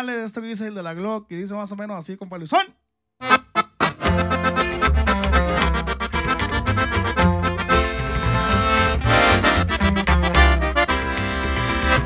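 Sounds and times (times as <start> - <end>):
button accordion playing: 3.2 - 12.0
guitar: 3.2 - 12.0
upright bass line: 3.2 - 12.0.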